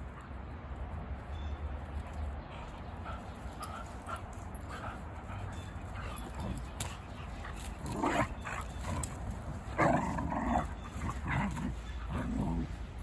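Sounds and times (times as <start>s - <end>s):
dogs play-fighting vocalizing: 3.0s - 13.0s.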